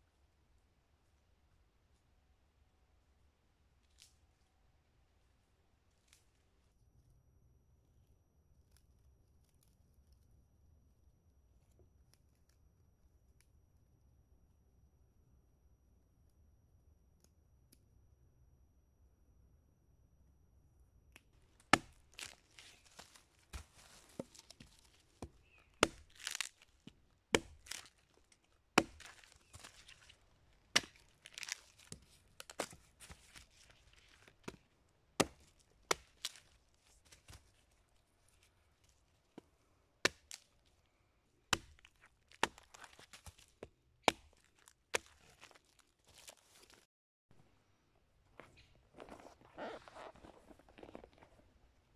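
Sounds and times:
wood cracking and splintering: 0:21.6 - 0:34.6, 0:35.2 - 0:37.4, 0:41.5 - 0:46.8
hand axe chopping log: 0:21.7 - 0:26.6, 0:27.3 - 0:28.0, 0:28.8 - 0:30.1, 0:30.7 - 0:33.2, 0:35.2 - 0:36.4, 0:40.0 - 0:40.4, 0:41.5 - 0:43.4, 0:44.0 - 0:45.2.

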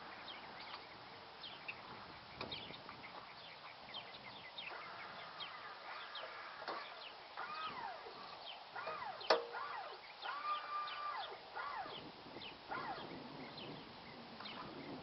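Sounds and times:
wavering animal calls: 0:04.7 - 0:12.0, 0:12.7 - 0:13.2
sharp click: 0:08.8 - 0:09.6.

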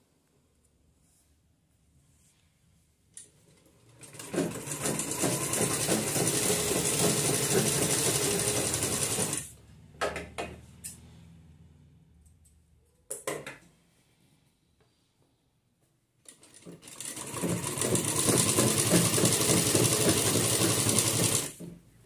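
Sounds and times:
sewing machine stitching: 0:03.8 - 0:09.5, 0:16.3 - 0:21.7.

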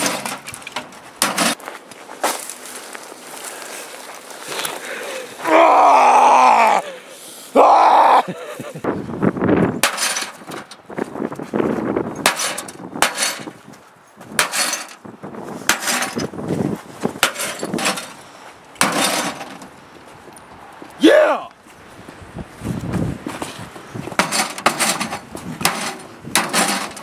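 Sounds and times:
man yelling: 0:05.4 - 0:06.8, 0:07.6 - 0:08.4, 0:21.0 - 0:21.6
breaking and clattering: 0:18.8 - 0:19.6.

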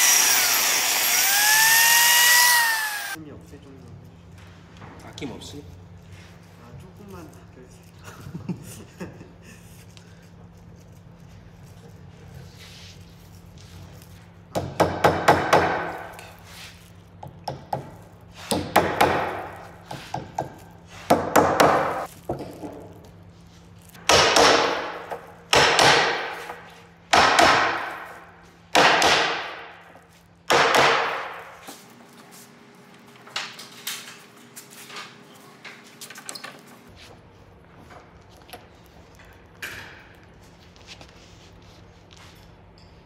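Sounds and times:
hammer knocking on wooden boards: 0:14.5 - 0:15.9.

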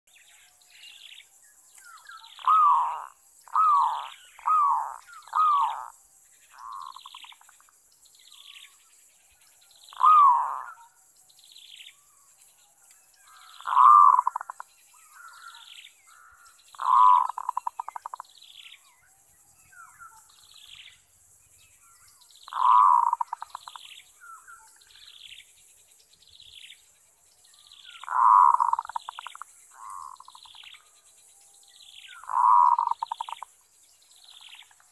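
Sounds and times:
dove cooing: 0:02.4 - 0:05.9, 0:09.9 - 0:10.8, 0:13.6 - 0:14.6, 0:16.8 - 0:18.2, 0:22.5 - 0:23.8, 0:28.0 - 0:30.5, 0:32.2 - 0:33.4.

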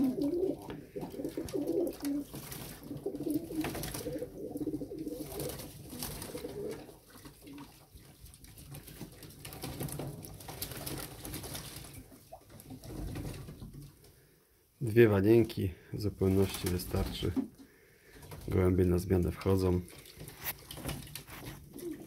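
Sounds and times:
pigeons cooing: 0:00.0 - 0:07.1.

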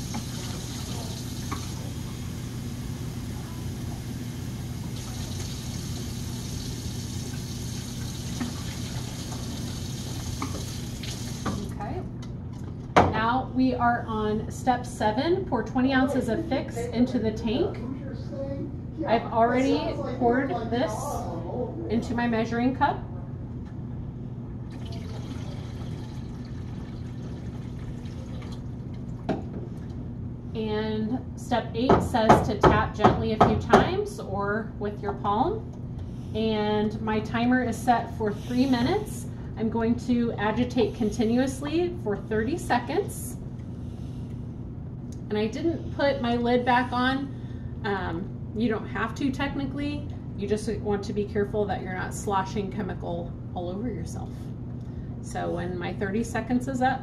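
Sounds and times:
tap water running into tank: 0:00.0 - 0:02.0, 0:04.8 - 0:11.7, 0:24.7 - 0:29.4
steady low hum: 0:00.0 - 0:57.0.

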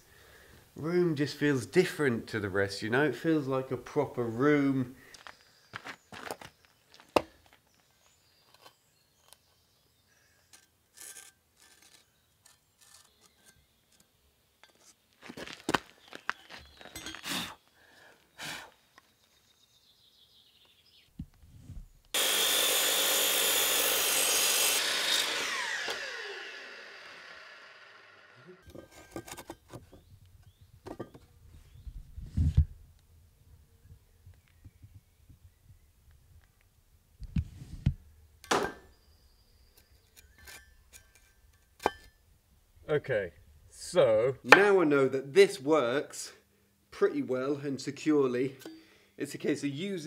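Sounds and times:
power saw cutting timber: 0:22.1 - 0:28.7
saw motor winding down: 0:22.2 - 0:28.6
knocks of timber being handled: 0:30.8 - 0:31.3.

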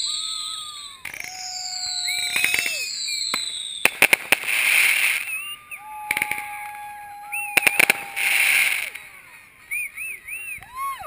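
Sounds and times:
firework hiss: 0:00.0 - 0:06.7, 0:07.5 - 0:09.2
firework cracks: 0:00.0 - 0:09.2
thin whistle-like tones: 0:00.0 - 0:11.0.

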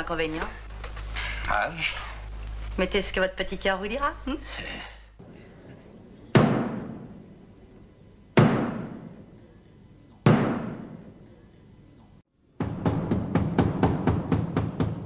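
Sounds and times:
heavy booming hits: 0:06.3 - 0:07.3, 0:08.4 - 0:09.3, 0:10.2 - 0:11.2.

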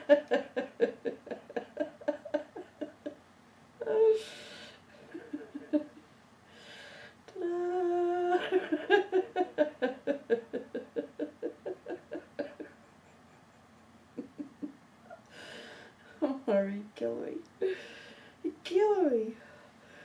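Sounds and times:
person laughing hard: 0:00.0 - 0:03.2, 0:08.2 - 0:14.8.

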